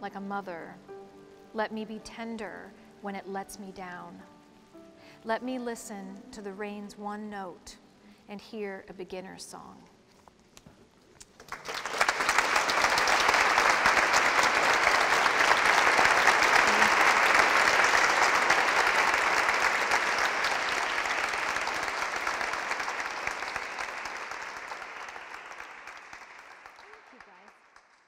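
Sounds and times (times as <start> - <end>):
audience applause: 11.3 - 28.0.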